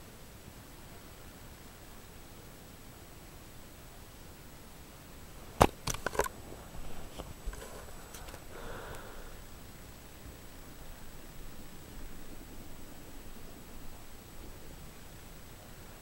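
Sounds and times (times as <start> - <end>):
soft rustling: 6.3 - 9.1.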